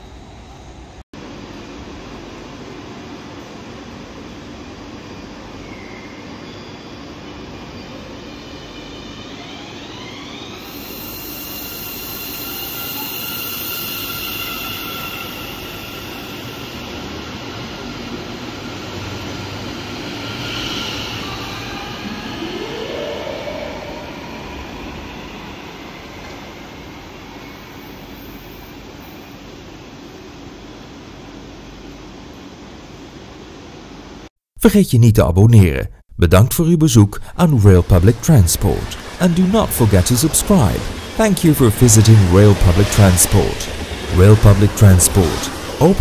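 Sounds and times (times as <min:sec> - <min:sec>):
train traction motor whine: 0:04.3 - 0:29.4
train wheels rumbling on track: 0:37.2 - 0:46.0.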